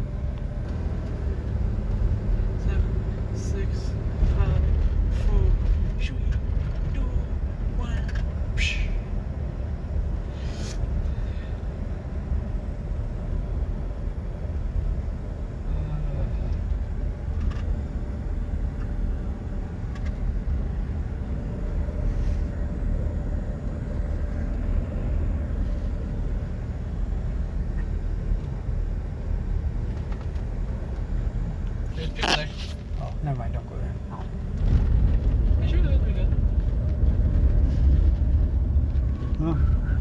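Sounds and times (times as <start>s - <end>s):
car engine and tyre rumble: 0.0s - 40.0s.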